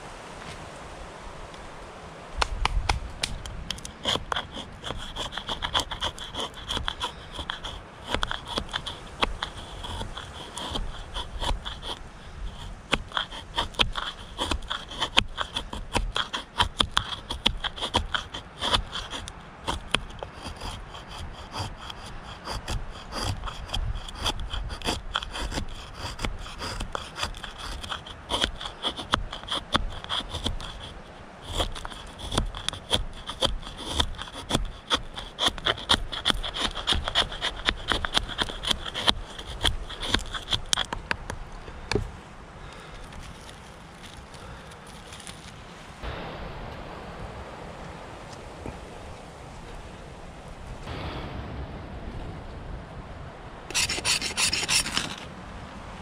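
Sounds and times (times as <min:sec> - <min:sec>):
knife scraping wooden stick: 0:03.7 - 0:41.3, 0:53.7 - 0:55.3.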